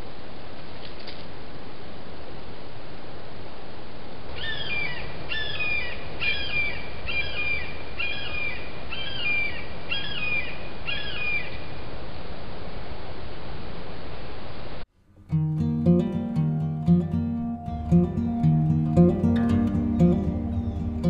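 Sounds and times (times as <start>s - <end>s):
bird calling: 4.4s - 11.6s.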